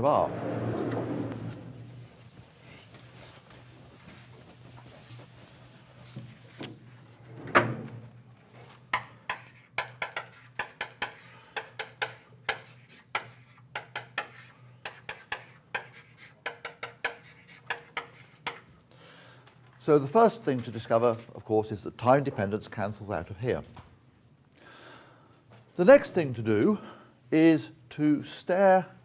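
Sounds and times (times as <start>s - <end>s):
chalk tapping and scraping: 1.2s - 7.0s, 8.6s - 18.7s.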